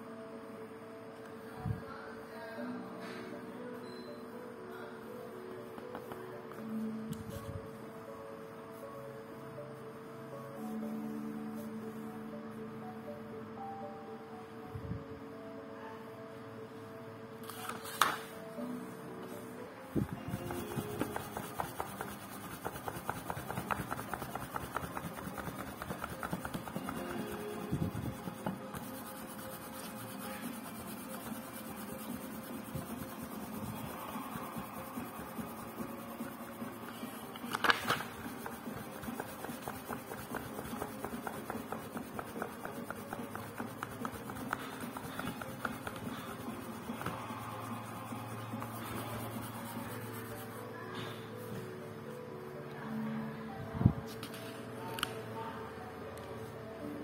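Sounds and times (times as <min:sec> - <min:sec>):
fingertip rubbing paper page: 0:17.4 - 0:18.3, 0:20.0 - 0:51.2
page turning: 0:17.4 - 0:18.3, 0:37.0 - 0:47.2, 0:54.1 - 0:55.2.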